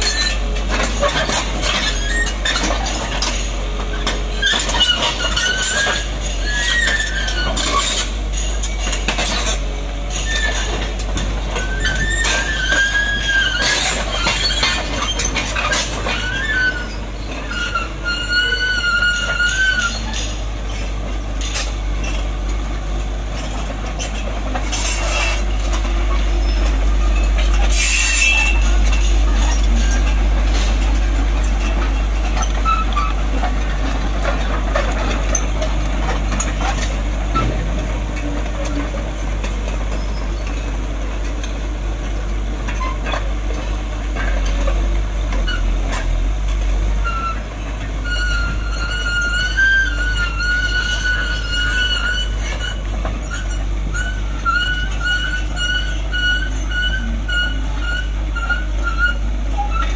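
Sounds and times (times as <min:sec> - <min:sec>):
high squeal from running gear: 0:00.0 - 0:08.8, 0:11.6 - 0:20.9, 0:23.4 - 0:30.7, 0:31.4 - 0:33.2, 0:47.0 - 0:47.4, 0:48.0 - 0:59.9
diesel engine rumbling: 0:00.0 - 0:59.9
steel tracks clanking: 0:00.0 - 0:59.9.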